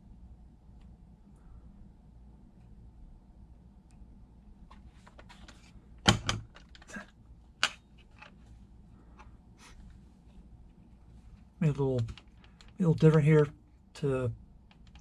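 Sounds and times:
plastic parts clicking and knocking: 0:05.0 - 0:08.4, 0:12.0 - 0:13.5.

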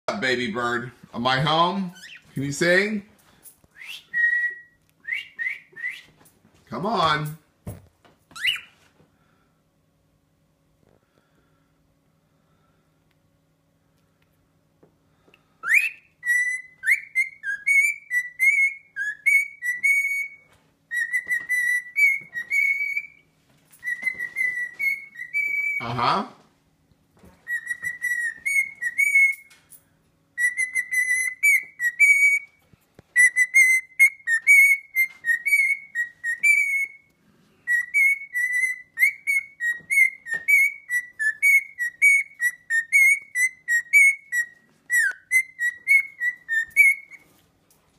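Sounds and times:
cockatiel whistling: 0:03.8 - 0:06.2, 0:08.3 - 0:08.8, 0:15.6 - 0:23.2, 0:23.8 - 0:25.9, 0:27.4 - 0:29.5, 0:30.4 - 0:47.3.

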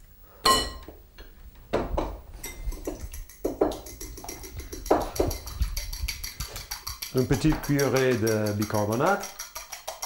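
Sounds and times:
kitchenware clinking on bowl: 0:02.4 - 0:10.0.

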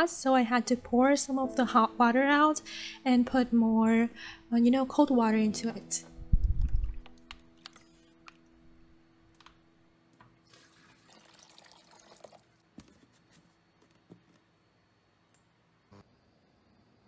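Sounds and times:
water pouring: 0:06.4 - 0:08.0, 0:10.4 - 0:12.6.

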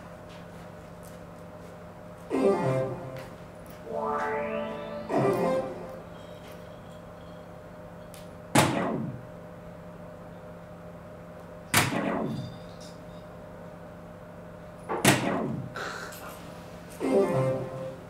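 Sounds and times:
darts hitting electronic dartboard: 0:08.5 - 0:09.4, 0:11.7 - 0:12.6, 0:14.9 - 0:15.8.

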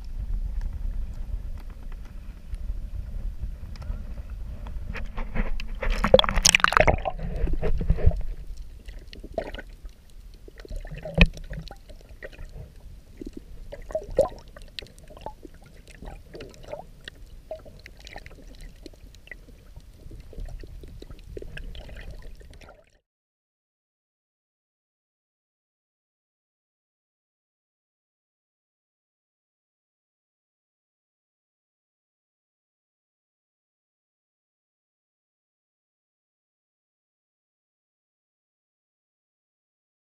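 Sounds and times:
underwater gurgling: 0:00.1 - 0:23.0
water sloshing and splashing: 0:05.0 - 0:23.0.

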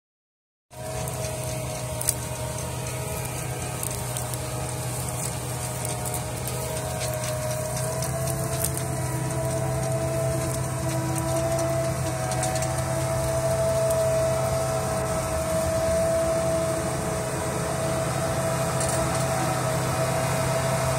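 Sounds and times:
tractor diesel engine under load: 0:00.7 - 0:20.9.

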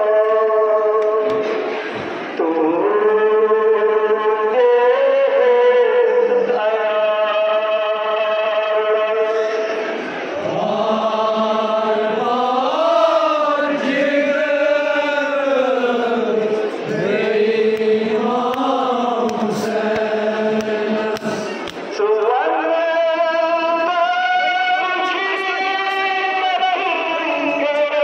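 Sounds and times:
men chanting a lament: 0:10.4 - 0:28.0.

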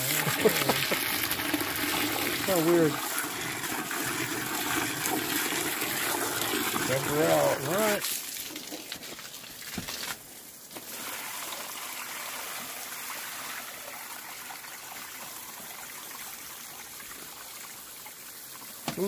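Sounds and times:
water running and trickling: 0:00.0 - 0:19.0.

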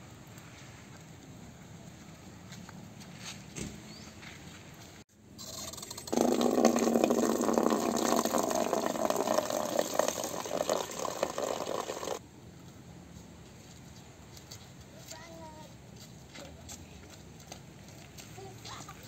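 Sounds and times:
water filling a plastic bucket: 0:05.4 - 0:12.2.

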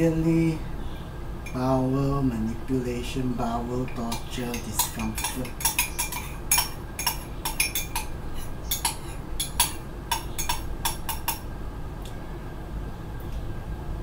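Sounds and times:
spoon clinking in ceramic mug: 0:03.8 - 0:11.4.

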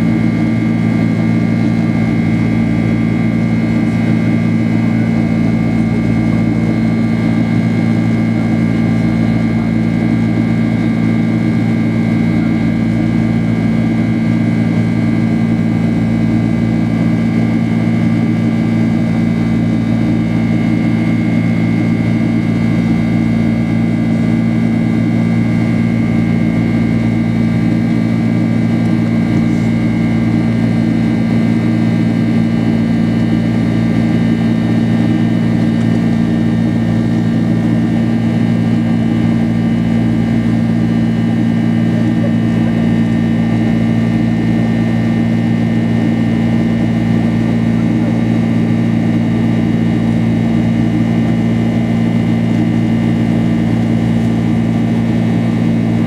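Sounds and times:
airplane cabin engine drone: 0:00.0 - 0:56.0.

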